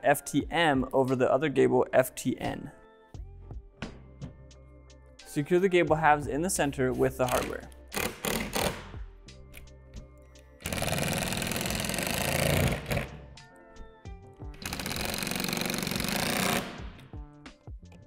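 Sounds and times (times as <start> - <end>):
background music: 0.0 - 18.0
cordless drill driving screws: 10.6 - 13.2, 14.6 - 16.8.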